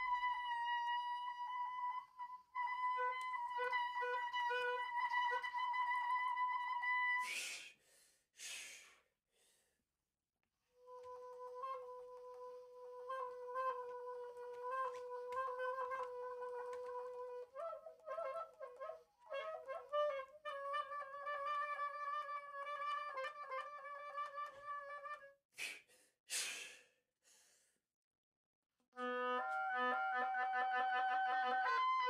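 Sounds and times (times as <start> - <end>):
oboe playing held notes: 0.0 - 7.3, 10.8 - 25.3, 29.0 - 32.0.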